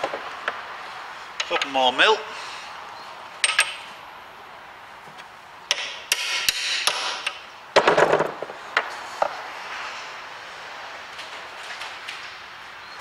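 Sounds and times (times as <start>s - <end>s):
metal tools clinking: 3.4s - 3.9s.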